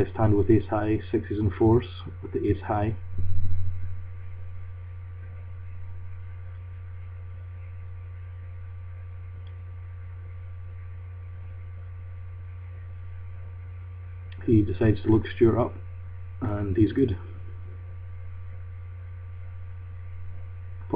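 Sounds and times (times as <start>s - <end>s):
low electrical hum: 0.0s - 20.9s
low rumble: 2.9s - 9.2s.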